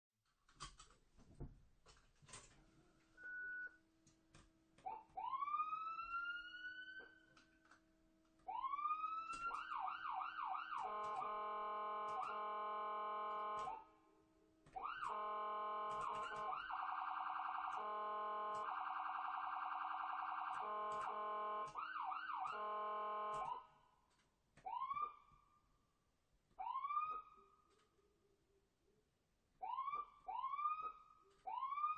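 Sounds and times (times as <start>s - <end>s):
ambulance siren: 4.8s - 7.4s, 8.4s - 13.9s, 14.7s - 23.8s, 24.6s - 25.6s, 26.6s - 27.6s, 29.6s - 31.9s.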